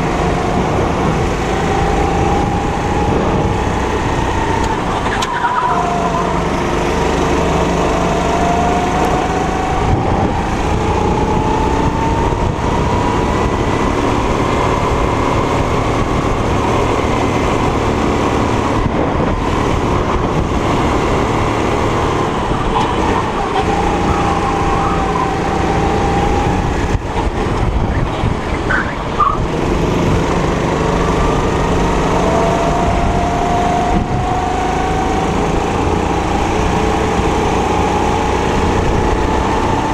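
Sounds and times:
go-kart engine running: 0.0 - 39.9.

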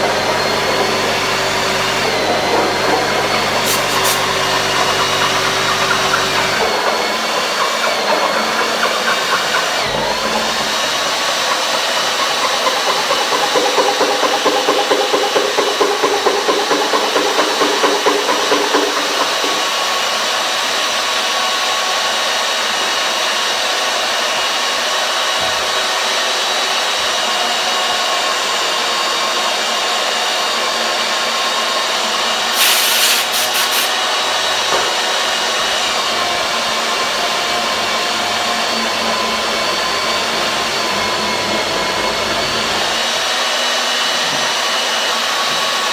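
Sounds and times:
drill cutting steel: 0.0 - 45.9
drill motor whine: 0.0 - 45.9
burst of hiss: 3.6 - 4.3, 32.5 - 34.0.

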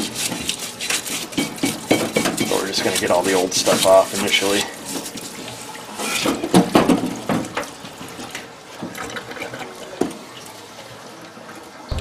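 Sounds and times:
solvent running and splashing: 0.0 - 11.2.

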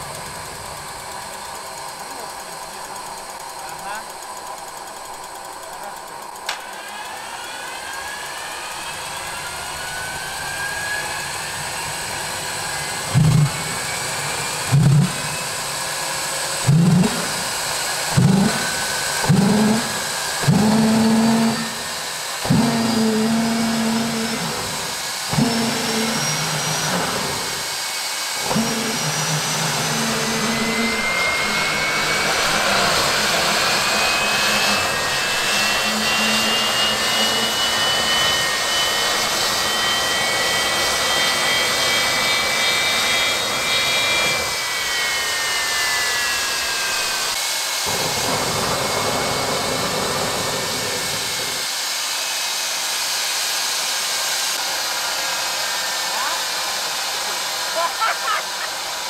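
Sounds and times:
starter whine rising in pitch: 0.0 - 51.8
turbine combustion hum: 0.0 - 51.8.

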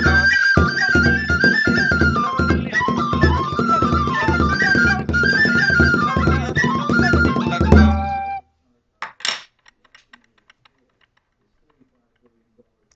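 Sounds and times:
frame drum strokes: 0.0 - 8.2
flute melody: 0.0 - 8.6.

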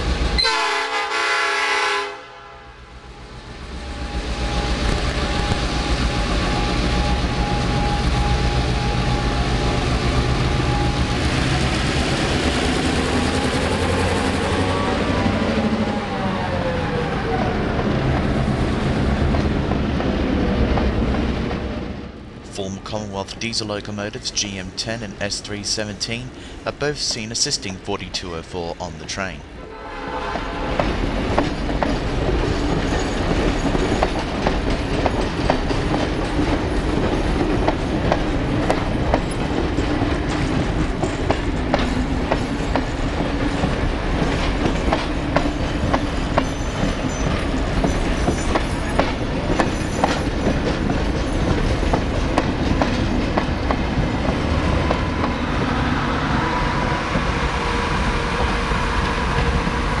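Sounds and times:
train wheels clicking over rail joints: 30.8 - 55.4.

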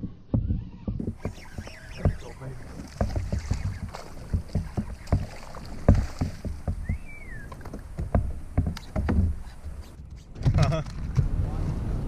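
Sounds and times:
knocks against kayak: 0.4 - 9.8
fish splashing in water: 1.0 - 10.0
short whistled chirp: 6.8 - 7.5.

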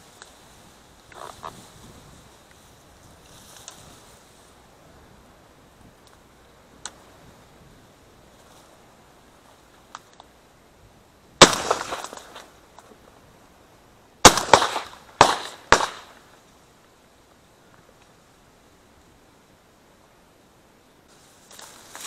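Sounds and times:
shotgun shots echoing: 11.4 - 12.4, 14.2 - 16.2.

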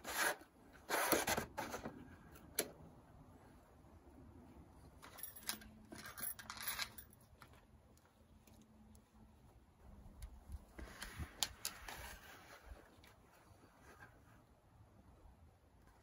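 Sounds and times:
light metallic clinking: 4.9 - 7.6.

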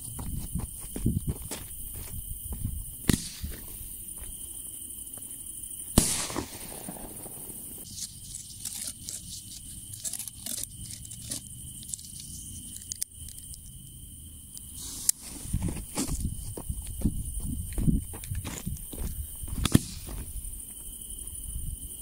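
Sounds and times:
firework bang with crackling: 6.0 - 7.6
fuse clicks and scuffs: 7.8 - 13.8, 14.5 - 21.3.

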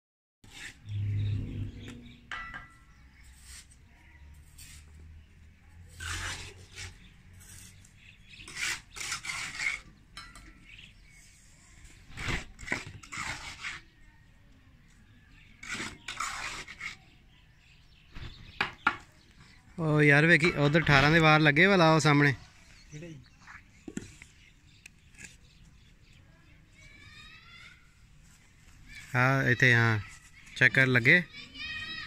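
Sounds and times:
trowels scraping mortar: 0.4 - 3.8, 4.4 - 5.0, 5.8 - 14.0, 15.5 - 17.2
trowels clinking on bricks and metal: 8.5 - 10.7.

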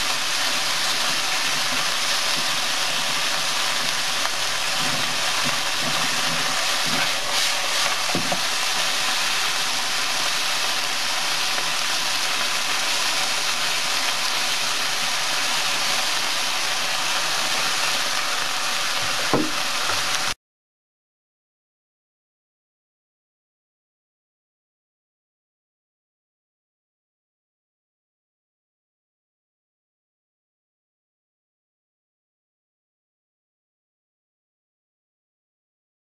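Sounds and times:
meat sizzling in a pan: 0.0 - 20.4.

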